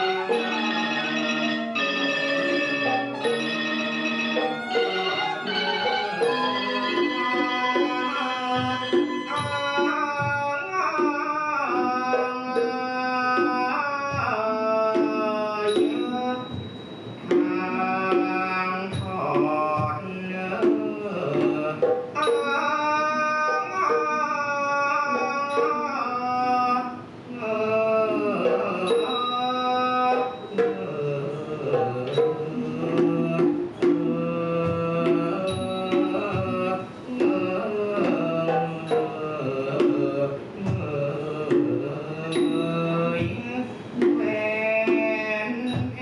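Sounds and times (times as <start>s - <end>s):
person singing gliding vocal line: 0.0s - 16.6s, 17.3s - 46.0s
xylophones gongs and drums ensemble: 0.0s - 24.4s, 25.1s - 27.0s, 28.1s - 46.0s
cymbal-like strokes: 15.7s - 19.1s, 28.2s - 31.5s.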